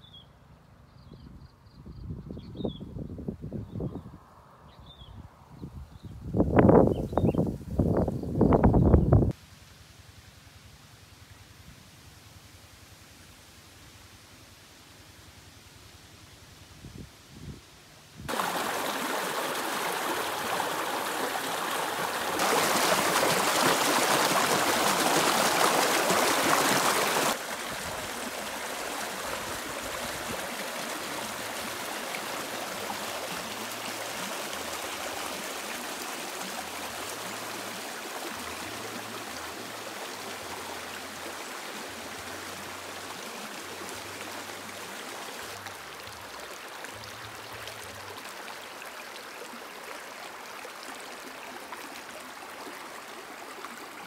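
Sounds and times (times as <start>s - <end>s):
creek running over stones: 18.3s - 54.0s.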